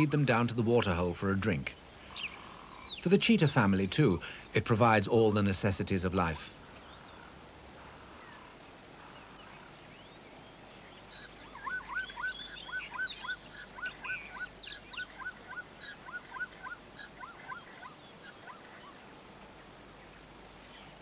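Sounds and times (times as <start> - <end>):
hooked chirping calls: 11.0 - 19.0.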